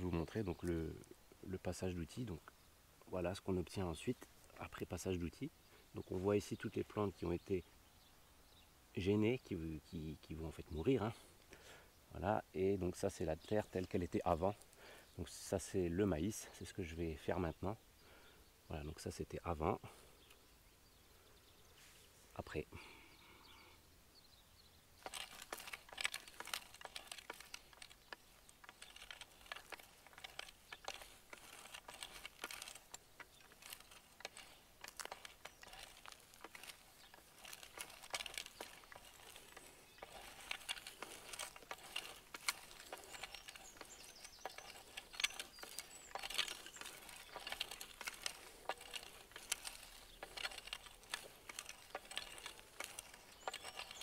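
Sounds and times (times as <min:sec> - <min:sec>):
hoe blade scraping dry soil: 0:25.0 - 0:54.0.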